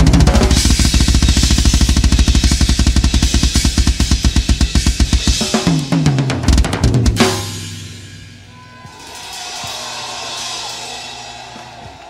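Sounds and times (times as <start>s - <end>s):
cymbals washing: 0.0s - 6.0s
fast bass drum strokes: 0.0s - 8.3s.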